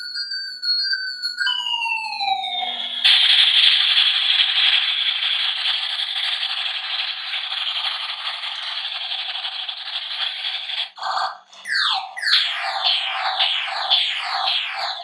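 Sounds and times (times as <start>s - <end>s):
toy gun rattling buzz: 3.1s - 11.0s.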